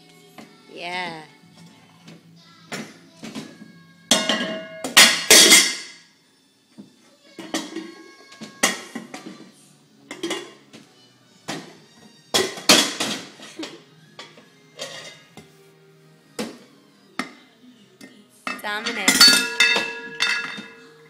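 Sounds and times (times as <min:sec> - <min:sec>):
metal pans clanging: 0:04.1 - 0:06.0, 0:07.4 - 0:09.5, 0:10.1 - 0:10.7, 0:12.3 - 0:15.3, 0:18.4 - 0:21.0.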